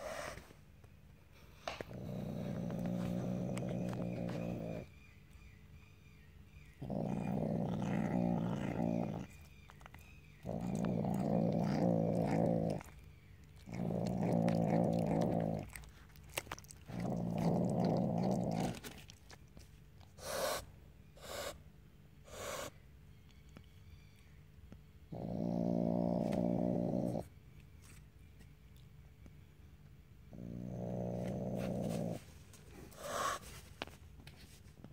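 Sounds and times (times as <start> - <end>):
wild cat growling: 1.8 - 4.9, 6.8 - 9.4, 10.4 - 13.0, 13.6 - 19.2, 25.1 - 27.3, 30.3 - 33.4.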